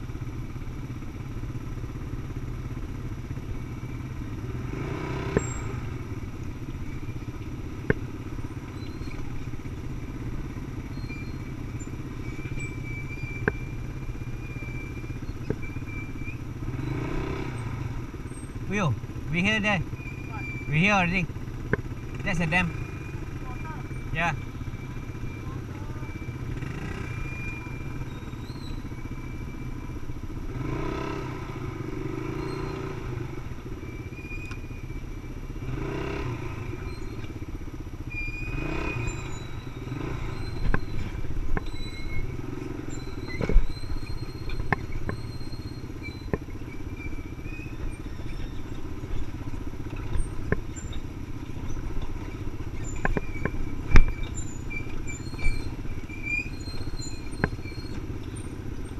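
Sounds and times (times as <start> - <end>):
quad engine running: 0.0 - 58.9
knocks and rattles over rough ground: 5.2 - 17.4, 19.9 - 29.5, 40.3 - 58.9.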